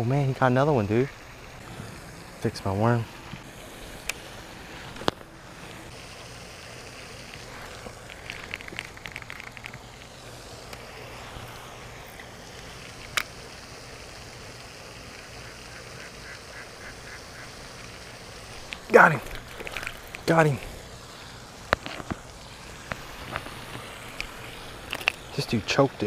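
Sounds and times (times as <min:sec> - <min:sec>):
ducks quacking: 0:15.0 - 0:18.2.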